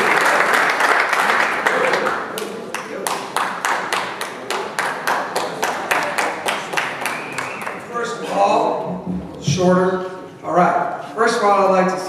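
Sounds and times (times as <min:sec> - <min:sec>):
rhythmic clapping in time: 0:00.0 - 0:07.9
audience applause: 0:00.0 - 0:08.0.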